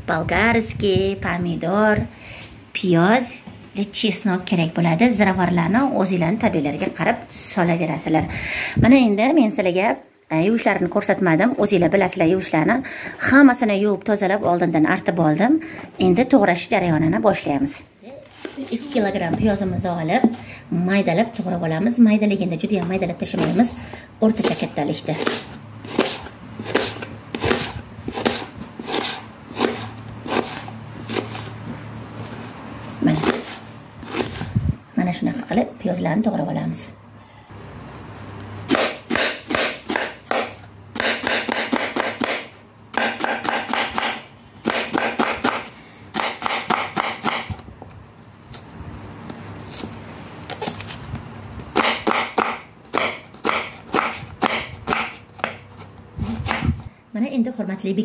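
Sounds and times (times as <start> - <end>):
knife chopping on wooden board: 24.4 - 31.5, 33.2 - 34.4, 38.7 - 47.6, 51.8 - 55.7, 56.4 - 56.8.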